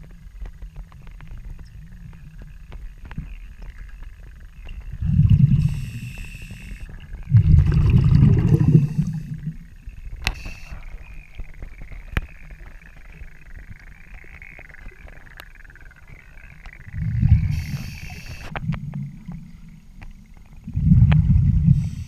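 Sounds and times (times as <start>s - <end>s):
exhaled bubbles rumbling: 0.0s - 22.0s
regulator hiss: 5.5s - 7.0s, 8.6s - 9.6s, 10.3s - 11.0s, 17.4s - 18.6s, 21.6s - 22.0s.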